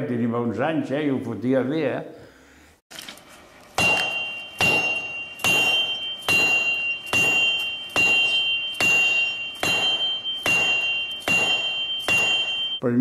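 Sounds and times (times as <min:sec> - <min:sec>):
hammer striking an anvil: 0:03.8 - 0:12.8.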